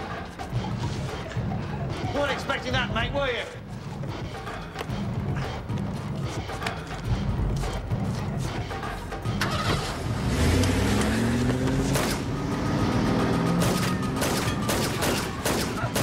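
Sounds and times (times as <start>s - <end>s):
car engine revving: 9.2s - 15.0s
rapid gunshots: 11.8s - 12.3s, 13.4s - 16.0s.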